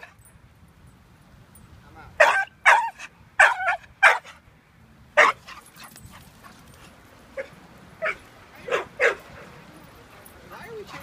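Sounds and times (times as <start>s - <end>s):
dog barking: 2.2s - 4.3s, 5.2s - 5.4s, 7.4s - 9.3s.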